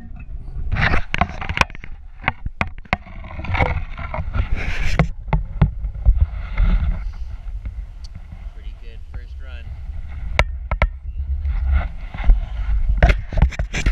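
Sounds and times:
wind rumbling on microphone: 0:00.0 - 0:13.9
knocks and clicks: 0:10.3 - 0:11.1.

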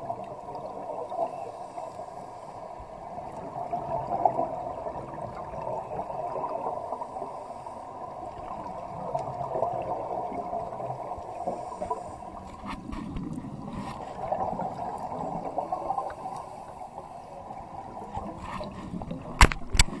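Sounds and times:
steady hiss: 0:01.1 - 0:03.4, 0:06.1 - 0:08.4.

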